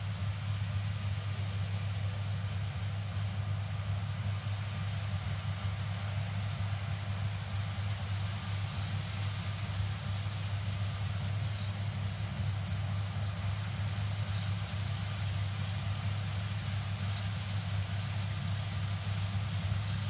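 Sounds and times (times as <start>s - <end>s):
combine harvester diesel drone: 0.0s - 20.0s
even hiss: 4.7s - 20.0s.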